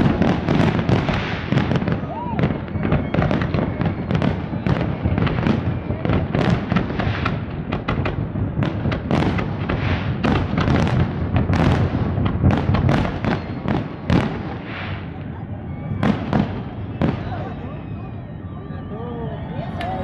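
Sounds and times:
fireworks hissing: 0.0 - 2.2, 9.5 - 10.9, 14.3 - 15.4
firework bangs: 0.0 - 18.6.

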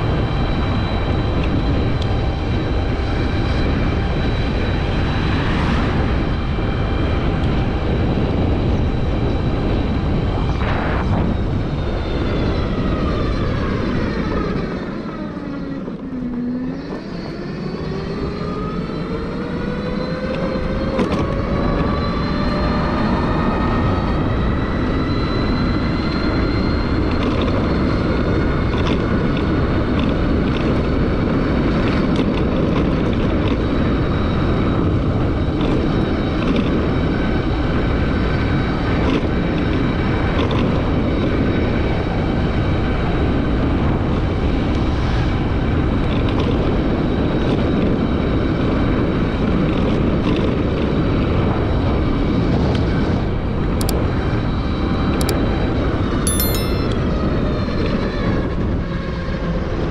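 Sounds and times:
electric scooter motor whine: 0.0 - 38.4
wind rush on microphone: 0.0 - 56.1.

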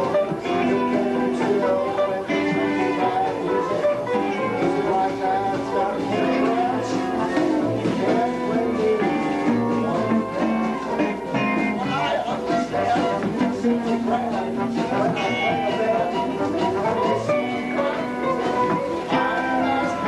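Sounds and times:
fiddle lead with sliding notes: 0.0 - 20.0
western swing band playing: 0.0 - 20.0.

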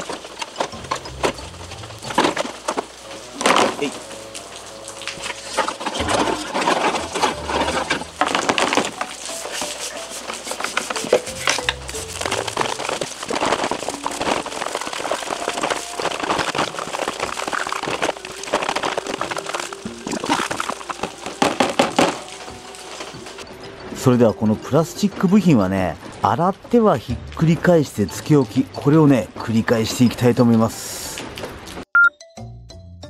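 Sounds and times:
brush scrubbing plastic: 0.0 - 23.4
water sloshing: 0.0 - 23.4
light background music: 0.4 - 31.0.

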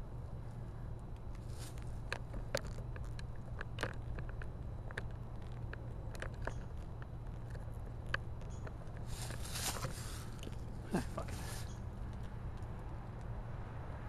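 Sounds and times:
light clicks and ticks: 1.0 - 9.5.

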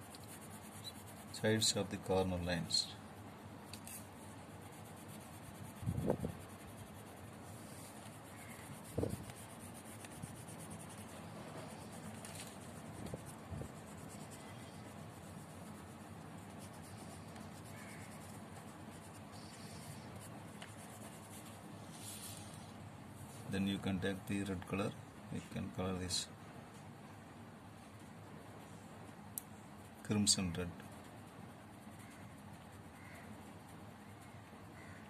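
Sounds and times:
pencil scratching on paper: 0.0 - 22.7, 29.8 - 34.3.

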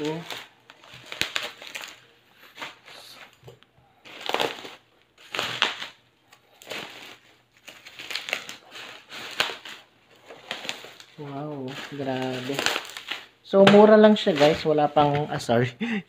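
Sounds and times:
bubble wrap crinkling: 0.0 - 15.5.

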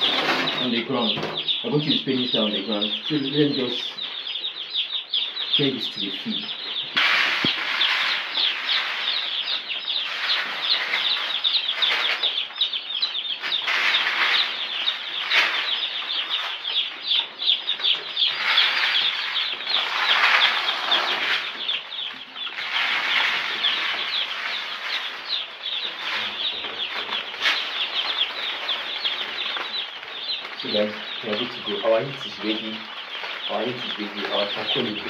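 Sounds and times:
chicks peeping: 0.0 - 35.0
rustling noise: 5.8 - 12.6, 13.4 - 17.0, 17.7 - 35.0.

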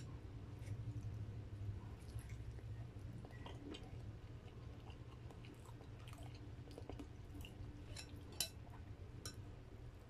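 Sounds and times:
person chewing food: 1.9 - 8.7.

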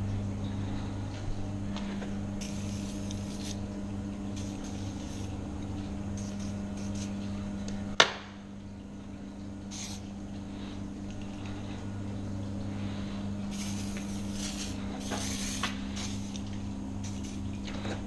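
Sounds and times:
steady low hum: 0.0 - 18.0
aerosol spray can hissing: 2.4 - 3.6, 9.7 - 10.0, 13.5 - 16.4.

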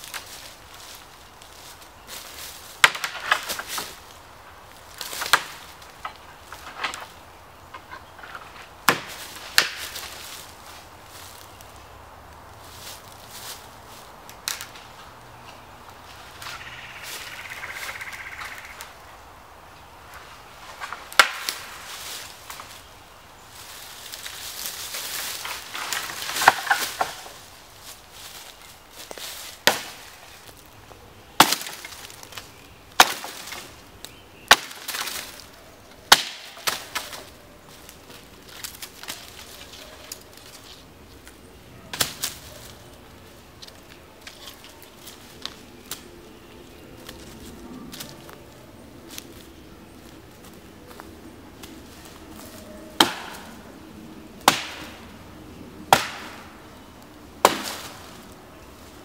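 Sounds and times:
wood cracking and snapping: 2.8 - 4.1, 5.0 - 7.1, 20.8 - 21.7, 25.2 - 27.4, 34.5 - 35.4
hatchet chopping wood: 8.9 - 9.8, 36.1 - 36.8, 53.0 - 53.4, 54.4 - 54.9, 55.9 - 56.4, 57.4 - 57.9.

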